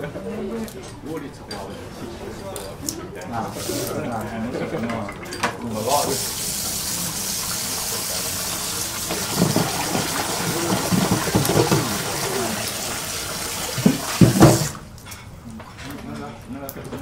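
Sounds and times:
low voices: 0.0s - 14.8s
water running from tap: 5.8s - 14.8s.

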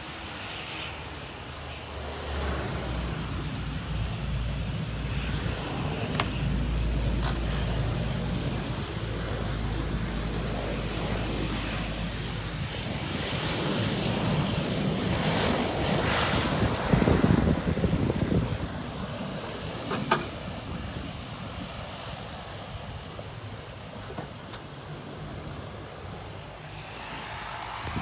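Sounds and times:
ground vehicle engine hum: 0.0s - 13.4s
turboprop airliner engine drone: 0.0s - 28.0s.

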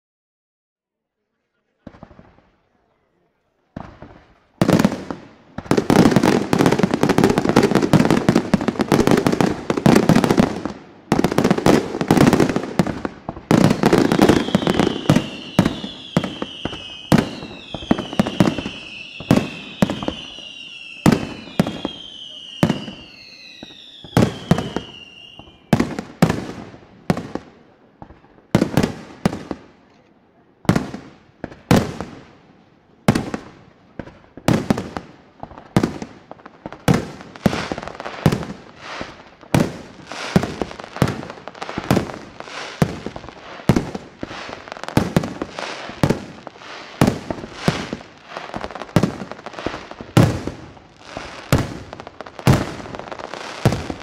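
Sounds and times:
firework bangs: 1.8s - 2.7s, 3.7s - 29.9s, 30.6s - 32.4s, 33.0s - 54.0s
firework falling whistle: 13.7s - 25.8s.

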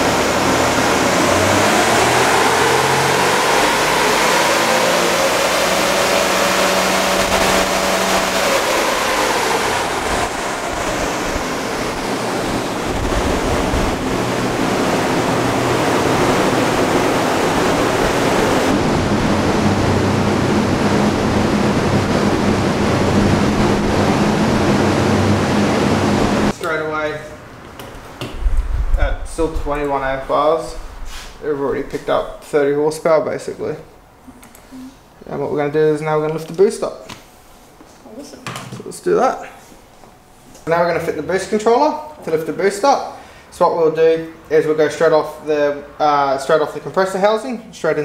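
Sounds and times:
diesel engine roaring under load: 0.0s - 26.6s
steady low hum: 0.0s - 38.4s.

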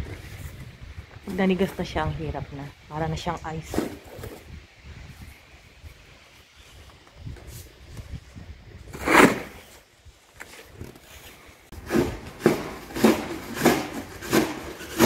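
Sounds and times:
plastic shovel scraping icy snow: 8.9s - 9.8s.

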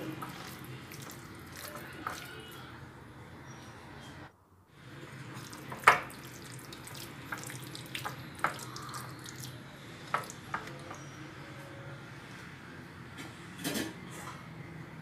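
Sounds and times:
hand squishing wet marinade: 0.0s - 2.7s, 5.2s - 10.8s.

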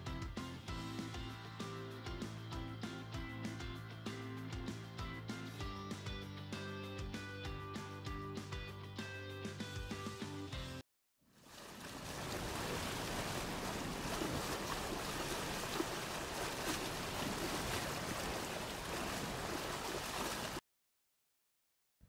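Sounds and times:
sea surf on rocky shore: 11.6s - 20.6s.

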